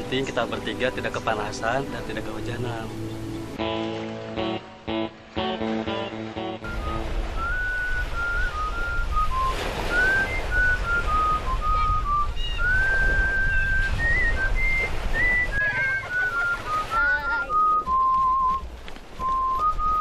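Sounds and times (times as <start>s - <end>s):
person whistling a tune: 6.7s - 20.0s.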